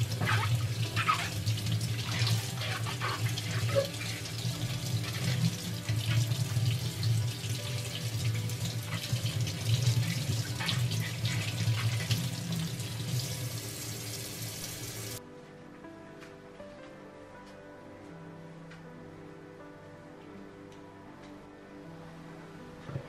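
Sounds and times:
tap water running into sink: 0:00.0 - 0:15.2
soft background music: 0:00.0 - 0:23.0.

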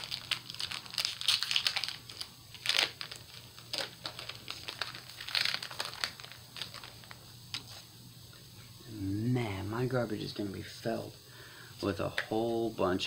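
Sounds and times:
foil wrapper crinkling: 0:00.0 - 0:07.9.

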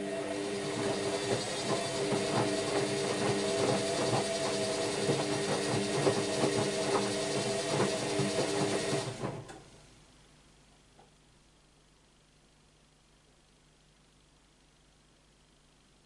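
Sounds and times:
washing machine drum motor humming: 0:00.0 - 0:09.6.

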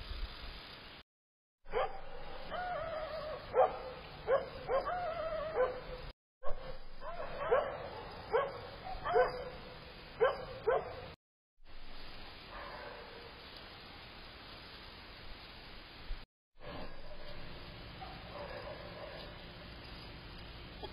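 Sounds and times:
dog barking: 0:01.7 - 0:11.2, 0:12.5 - 0:13.2, 0:18.0 - 0:19.3.

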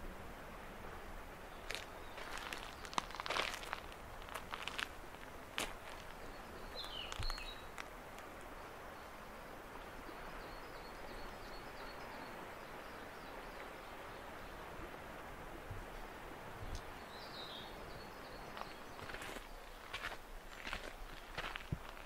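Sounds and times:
small birds chirping: 0:01.5 - 0:14.6, 0:16.6 - 0:22.0
footsteps crunching: 0:01.6 - 0:08.3, 0:18.6 - 0:22.0.

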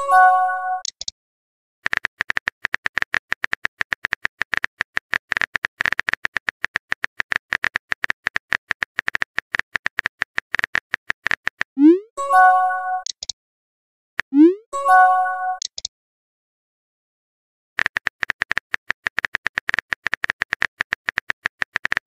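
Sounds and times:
message sent chime: 0:00.0 - 0:00.8, 0:11.8 - 0:13.1, 0:14.5 - 0:15.6.

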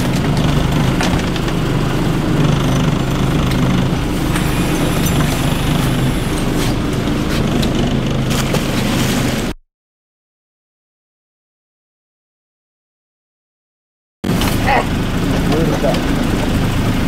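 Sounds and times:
boat engine running: 0:00.0 - 0:09.6, 0:14.2 - 0:17.0.

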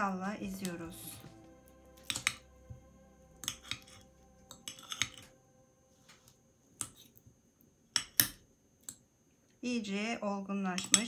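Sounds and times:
fork scraping glass bowl: 0:03.4 - 0:05.3.

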